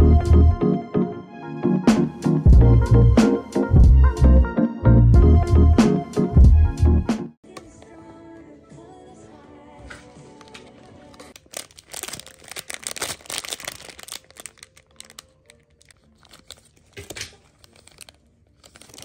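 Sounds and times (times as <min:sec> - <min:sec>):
background music: 0:00.0 - 0:19.0
rapid crinkling and crackling: 0:09.8 - 0:19.0.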